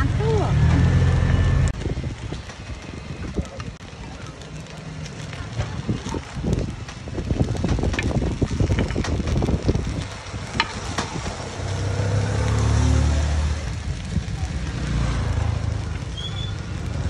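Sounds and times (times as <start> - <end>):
light sizzle: 0.0 - 17.0.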